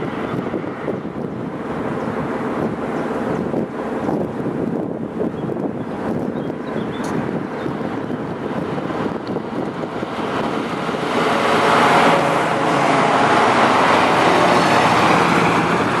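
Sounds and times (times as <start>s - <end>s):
trucks driving past: 0.0s - 16.0s.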